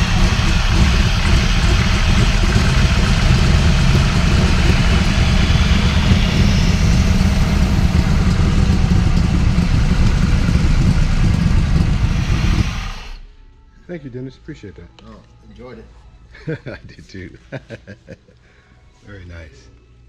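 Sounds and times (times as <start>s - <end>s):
car engine running loudly: 0.0s - 13.3s.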